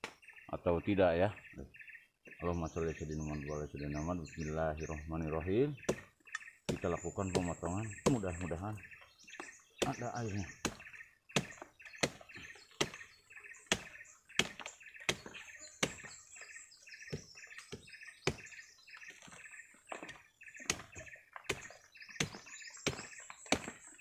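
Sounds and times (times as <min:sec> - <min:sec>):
birds chirping: 0:00.0 - 0:24.0
blade chopping plant stalk: 0:09.8 - 0:13.1, 0:13.7 - 0:16.2, 0:19.9 - 0:24.0.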